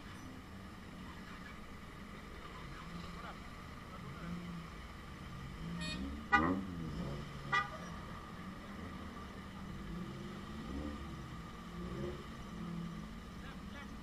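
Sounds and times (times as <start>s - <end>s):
vehicle horn toots: 5.8s - 6.8s, 7.4s - 8.0s.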